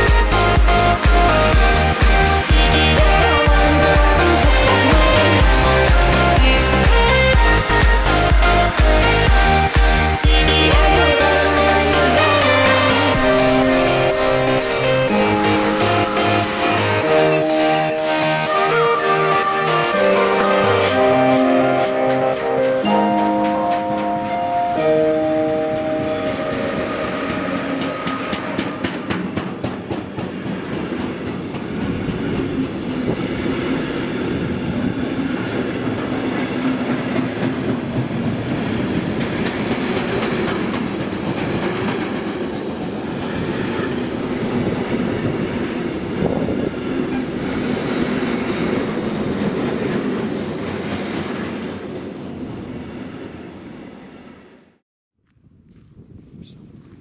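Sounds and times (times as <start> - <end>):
train cars rumbling past: 0.0 - 54.8
train wheels clattering over rail joints: 27.3 - 33.6.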